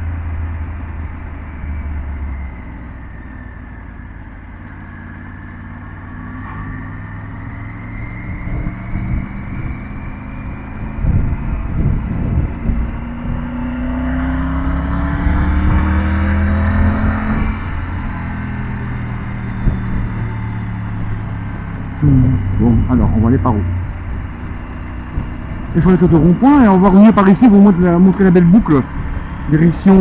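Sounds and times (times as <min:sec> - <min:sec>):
motorcycle engine accelerating: 0:00.0 - 0:30.0
wind noise on microphone: 0:08.2 - 0:13.7, 0:19.5 - 0:20.4.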